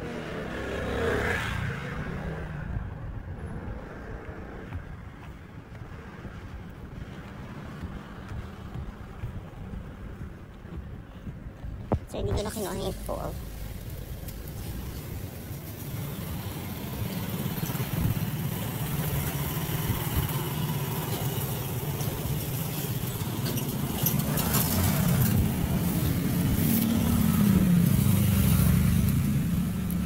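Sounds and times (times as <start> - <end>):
small motorcycle engines passing: 13.3 - 30.0.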